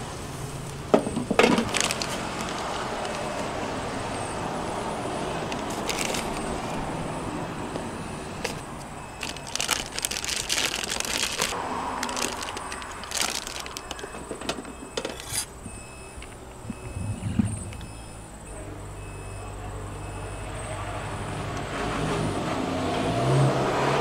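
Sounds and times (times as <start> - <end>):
plastic bag crinkling: 1.4 - 3.5, 5.4 - 6.8, 8.4 - 14.4.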